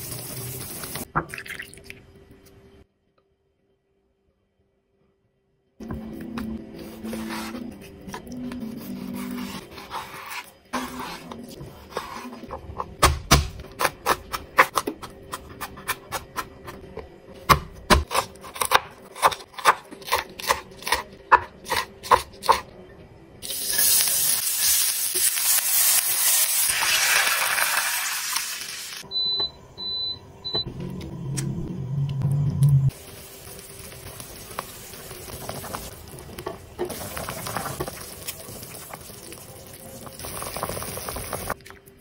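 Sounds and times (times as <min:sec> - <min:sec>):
food sizzling in a pan: 0:00.0 - 0:01.1, 0:23.4 - 0:29.0, 0:32.9 - 0:41.6
low rumble: 0:30.4 - 0:33.0.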